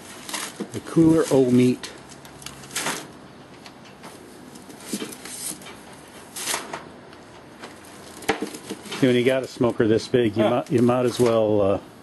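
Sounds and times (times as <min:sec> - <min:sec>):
meat laid on grill grate: 0:00.0 - 0:02.8
wrapped meat rustling: 0:00.0 - 0:03.1, 0:07.7 - 0:09.8.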